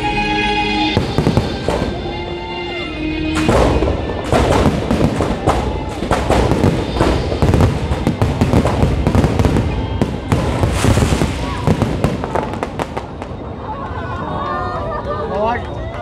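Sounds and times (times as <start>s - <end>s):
music playing: 0.0s - 13.6s
fireworks bangs: 0.8s - 2.5s, 3.3s - 14.0s.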